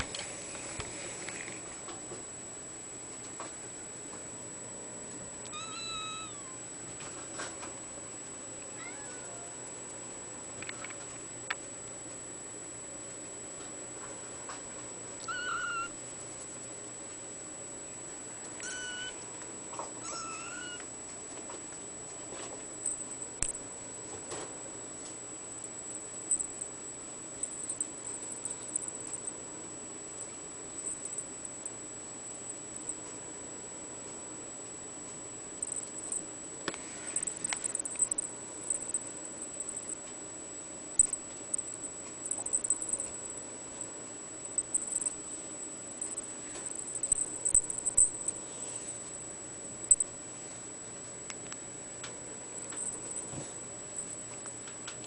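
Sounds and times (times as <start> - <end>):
thin high whine: 5.4 - 7.6, 15.2 - 16.1, 18.5 - 20.9, 35.5 - 49.1
kitten meowing: 5.5 - 6.6, 8.6 - 9.6, 15.2 - 16.0, 18.6 - 19.2, 20.0 - 20.9.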